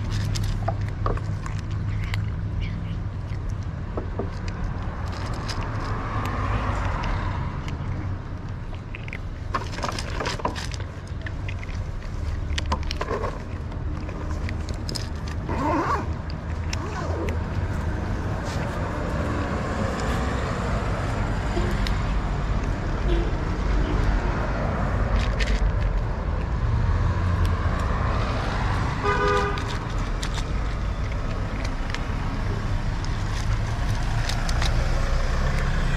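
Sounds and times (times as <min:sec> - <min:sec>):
kitten crunching dry food: 0:00.0 - 0:35.9
low rumble of street: 0:00.0 - 0:35.9.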